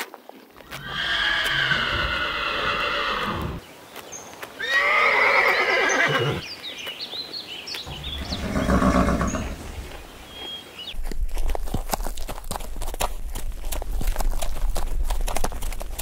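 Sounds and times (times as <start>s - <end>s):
horses neighing: 0.7s - 3.6s, 4.6s - 6.4s, 7.9s - 10.2s.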